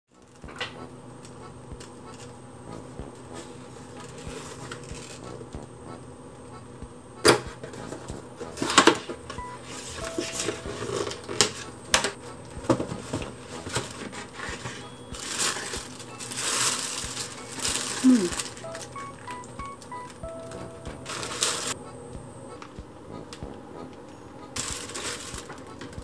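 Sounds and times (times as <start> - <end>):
paper wrapping rustling: 12.8 - 21.8, 24.6 - 26.0.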